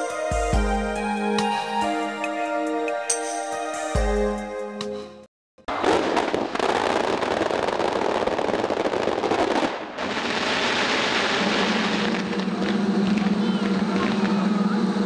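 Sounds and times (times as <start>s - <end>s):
synthesized music: 0.0s - 5.3s
fireworks crackling and popping: 5.7s - 15.0s.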